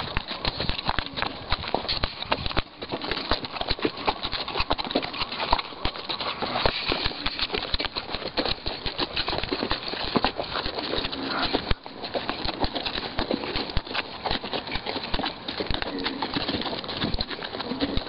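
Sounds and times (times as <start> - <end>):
horse hooves on gravel: 0.0 - 18.0.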